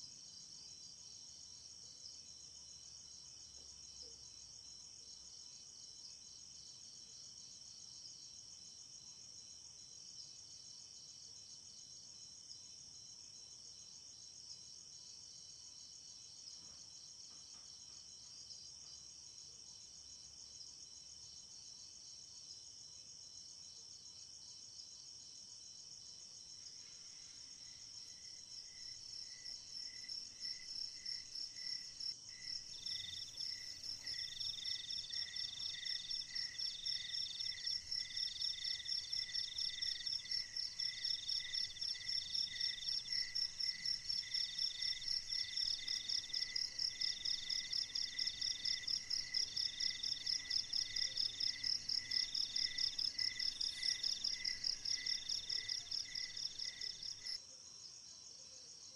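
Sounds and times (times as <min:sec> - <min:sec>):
slow low cricket chirp: 0:00.0 - 0:58.9
high pulsing insect trill: 0:25.7 - 0:57.4.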